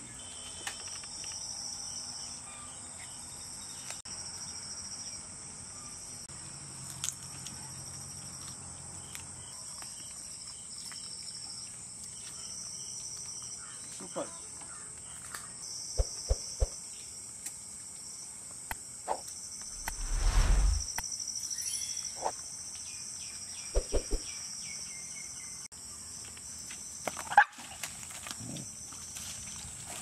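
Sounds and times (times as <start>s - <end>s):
insects chirring: 8.1s - 24.7s
loud low rumble: 19.8s - 20.9s
sharp sound: 19.8s - 20.9s.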